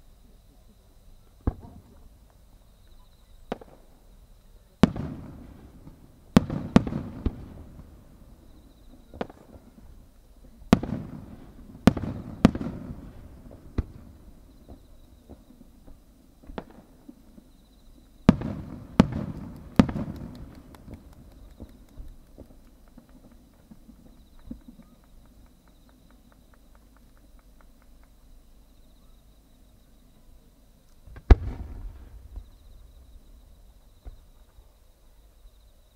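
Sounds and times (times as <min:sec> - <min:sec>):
firework booms with echo: 0:01.4 - 0:02.0, 0:03.4 - 0:04.0, 0:04.8 - 0:08.3, 0:09.0 - 0:10.0, 0:10.7 - 0:17.1, 0:18.2 - 0:25.0, 0:31.0 - 0:34.7.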